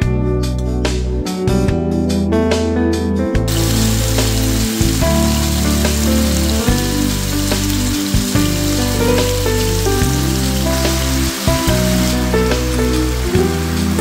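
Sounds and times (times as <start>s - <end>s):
background music with bass line: 0.0s - 14.0s
pork sizzling in a pan: 3.5s - 14.0s.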